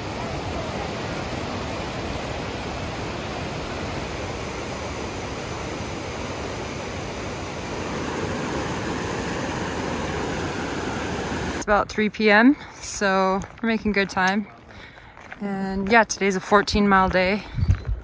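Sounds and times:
waterfall rushing: 0.0s - 11.6s.

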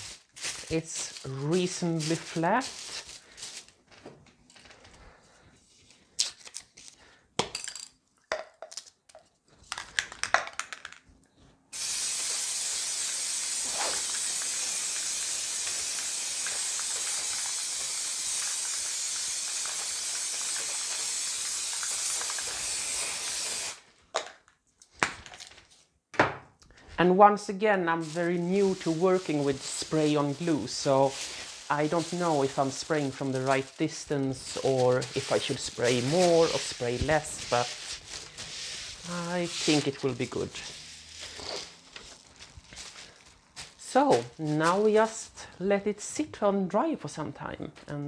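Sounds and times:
aerosol can spraying hiss: 11.7s - 23.8s, 28.0s - 41.6s.

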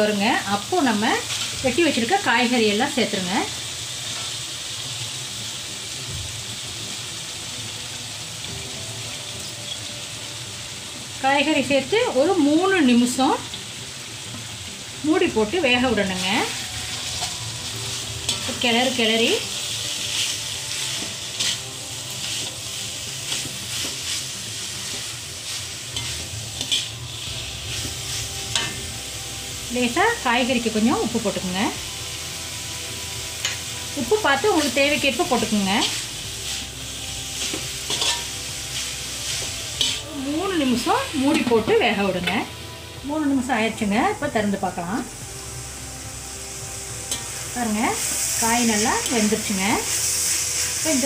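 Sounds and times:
paste sizzling in oil: 0.0s - 51.0s
steel spatula scraping wok: 15.7s - 31.7s, 33.3s - 42.5s, 47.1s - 51.0s.

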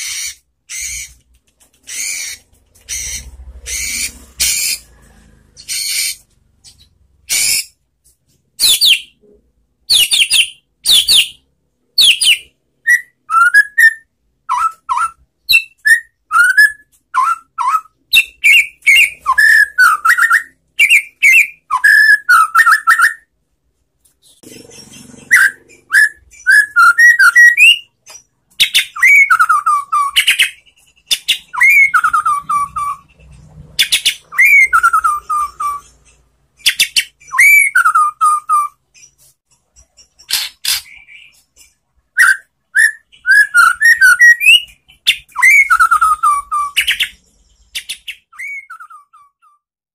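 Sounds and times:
bird singing whistled phrases: 12.0s - 23.3s, 24.9s - 27.9s, 28.6s - 33.0s, 33.9s - 35.9s, 36.6s - 38.8s, 42.2s - 47.2s, 47.8s - 49.6s.

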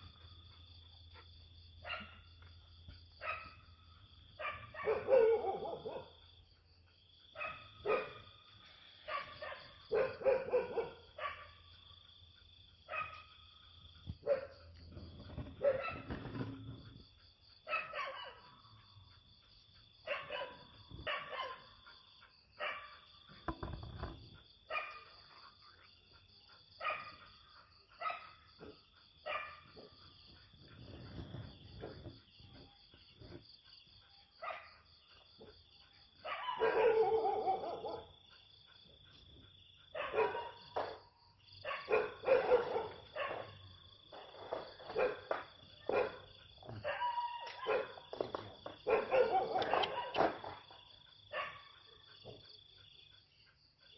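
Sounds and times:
night insects chirring: 0.0s - 53.9s
dog barking: 1.2s - 2.3s, 3.2s - 6.3s, 7.3s - 8.4s, 9.0s - 11.8s, 12.8s - 13.4s, 14.1s - 16.6s, 17.6s - 19.0s, 20.0s - 30.5s, 34.1s - 52.7s.

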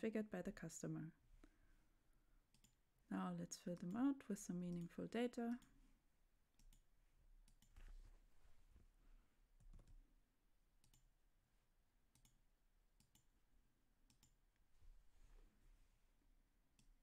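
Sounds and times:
faint computer mouse clicks: 4.6s - 4.9s, 10.8s - 11.0s.

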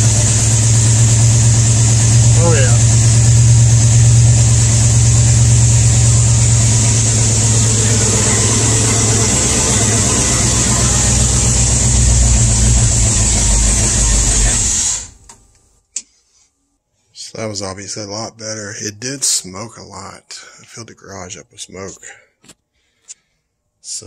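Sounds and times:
engine running through leaky exhaust: 0.0s - 15.3s.

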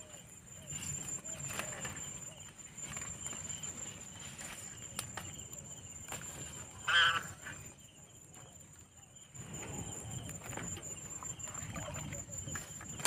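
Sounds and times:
faint outdoor background noise: 0.0s - 13.0s
animal call with wavering pitch: 6.8s - 7.4s.

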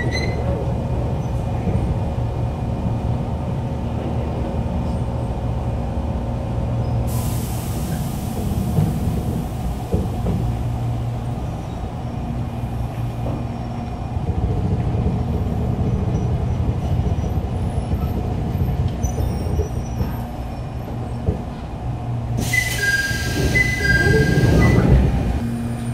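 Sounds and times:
hiss: 7.1s - 10.2s
electric train humming: 20.0s - 25.9s.

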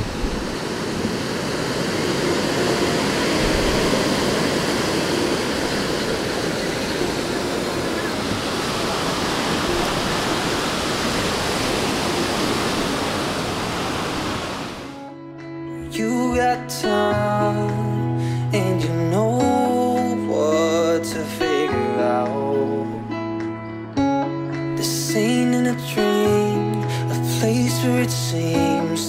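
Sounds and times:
sea waves breaking on beach: 0.0s - 15.0s.

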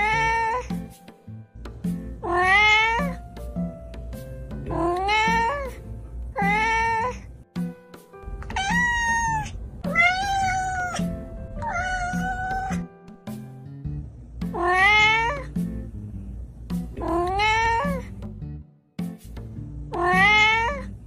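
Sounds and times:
cat meowing: 0.0s - 0.8s, 2.2s - 3.2s, 4.7s - 5.8s, 6.4s - 7.2s, 8.3s - 12.9s, 14.5s - 15.6s, 17.0s - 18.1s, 19.9s - 20.9s
background music with steady beat: 0.0s - 21.0s.

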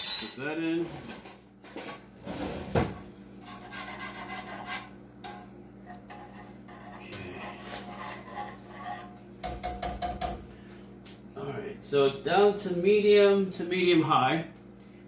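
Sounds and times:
steady low hum: 0.0s - 15.0s
wire whisk scraping a pan: 3.4s - 9.2s.

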